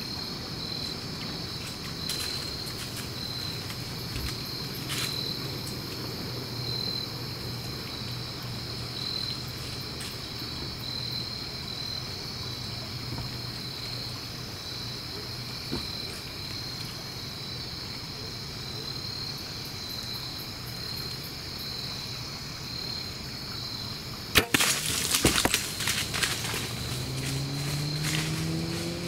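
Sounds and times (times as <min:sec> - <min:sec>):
insect chorus: 0:00.0 - 0:29.0
animal running through dry leaves: 0:01.3 - 0:05.2, 0:24.5 - 0:29.0
sharp crack of bow shot: 0:24.3 - 0:26.4.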